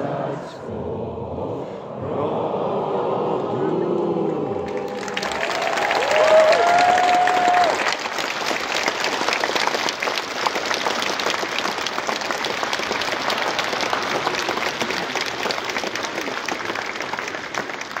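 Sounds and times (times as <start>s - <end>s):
crowd applauding: 4.6s - 18.0s.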